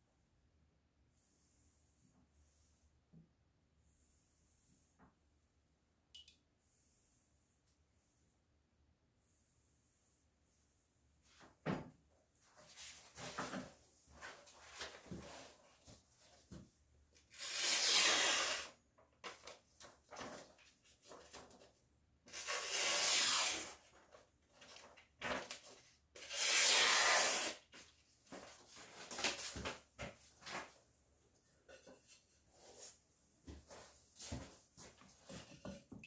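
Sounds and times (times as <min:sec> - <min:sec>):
knife blade scraping abrasive: 0:17.4 - 0:18.7, 0:26.2 - 0:27.6.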